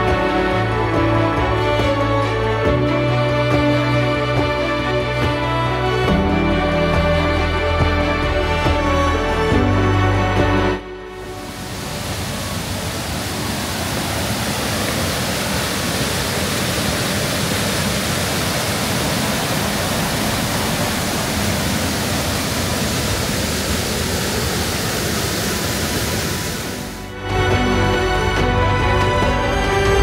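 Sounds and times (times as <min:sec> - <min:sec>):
waterfall rushing roar: 0:11.2 - 0:27.8.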